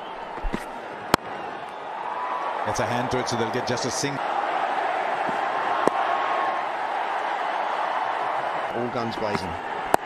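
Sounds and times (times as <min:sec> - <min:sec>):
stadium crowd din: 0:00.0 - 0:10.0
bat cracking ball: 0:00.4 - 0:01.3, 0:05.2 - 0:06.0.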